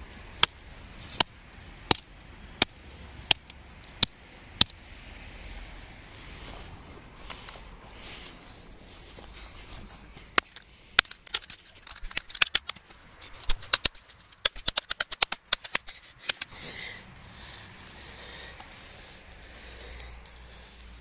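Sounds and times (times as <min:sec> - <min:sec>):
rustling of broken phone handled: 0:08.8 - 0:16.6.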